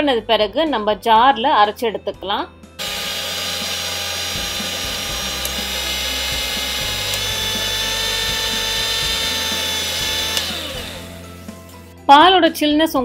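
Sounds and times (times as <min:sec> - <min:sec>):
blender motor whining: 0:02.8 - 0:11.9.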